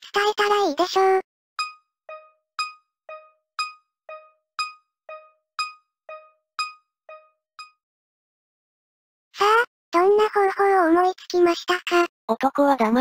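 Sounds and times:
electronic tick-tock notes: 0:01.6 - 0:07.8.

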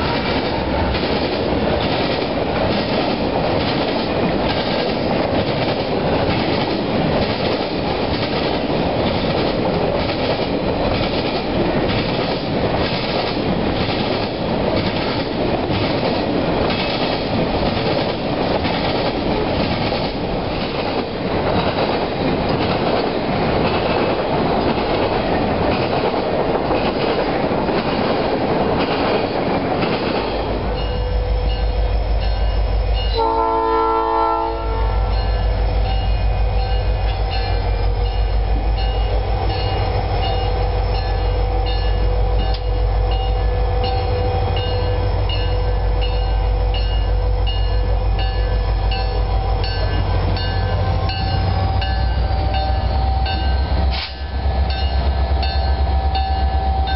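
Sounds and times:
diesel locomotive rumbling: 0:00.0 - 0:56.9
train wheels clattering on rail: 0:00.0 - 0:56.9
locomotive air horn blast: 0:33.1 - 0:35.2.

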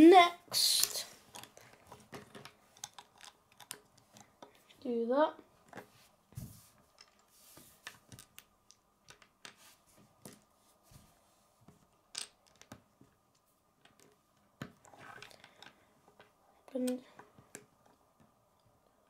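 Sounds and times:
plastic bricks clicking on wood: 0:01.3 - 0:04.6, 0:08.1 - 0:09.6.

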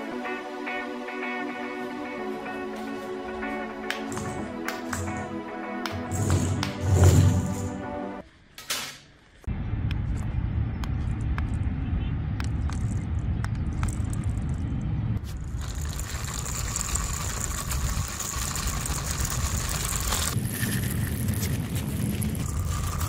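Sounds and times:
low rumble: 0:09.5 - 0:23.0
small electric motors running: 0:15.4 - 0:23.0.

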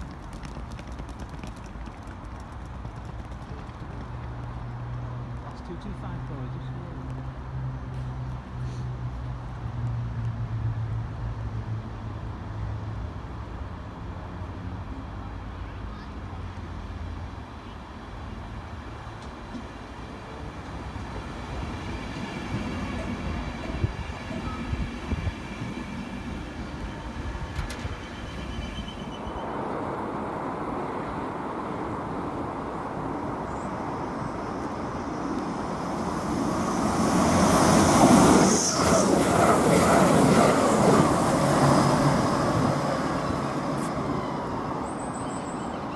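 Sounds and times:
train wheels rumbling on rail: 0:00.0 - 0:09.9, 0:18.1 - 0:30.3, 0:33.1 - 0:45.9
faint train whine: 0:11.6 - 0:45.9.

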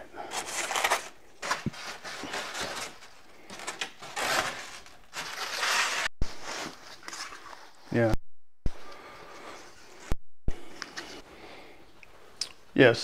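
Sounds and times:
styrofoam rustling against cardboard: 0:00.3 - 0:07.4.

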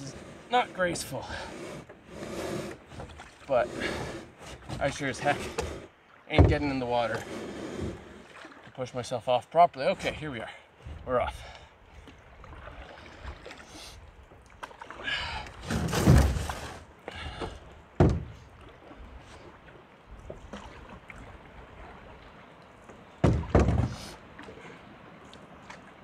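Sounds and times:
paddle knocking canoe hull: 0:00.0 - 0:08.7, 0:14.6 - 0:19.4, 0:22.8 - 0:24.6
paddle strokes swishing water: 0:00.0 - 0:26.0.

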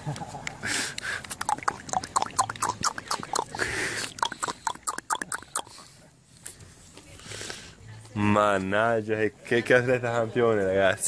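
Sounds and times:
person clapping quickly: 0:00.1 - 0:05.7.

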